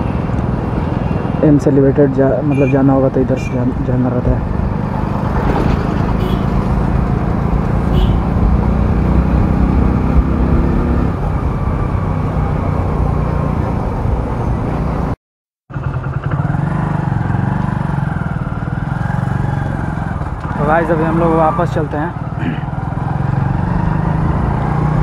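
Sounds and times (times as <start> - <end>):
motorcycle engine running: 15.7 - 21.6.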